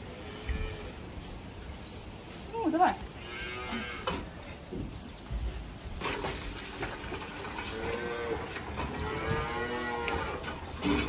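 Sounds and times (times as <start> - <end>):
cattle mooing: 3.2 - 4.2, 7.6 - 10.5.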